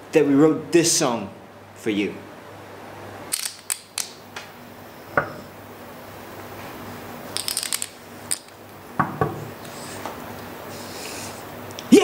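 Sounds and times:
poker chips clicking: 3.3s - 4.2s, 7.3s - 8.6s.

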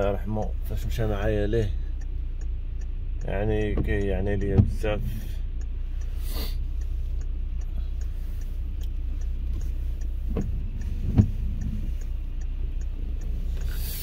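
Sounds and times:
car engine idling: 0.0s - 14.0s
turn-signal relay ticking: 0.0s - 14.0s
windscreen wiper thumps: 3.4s - 5.4s, 7.8s - 14.0s.

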